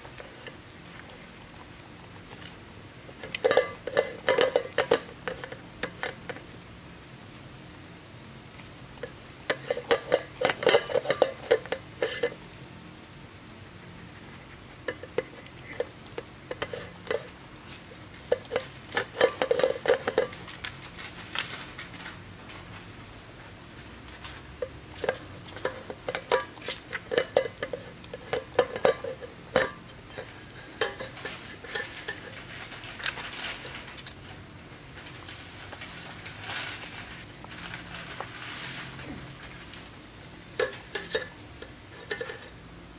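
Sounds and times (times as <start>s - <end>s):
metal bowl clinking on tray: 3.2s - 6.2s, 9.5s - 12.4s, 24.6s - 32.4s, 40.6s - 42.5s.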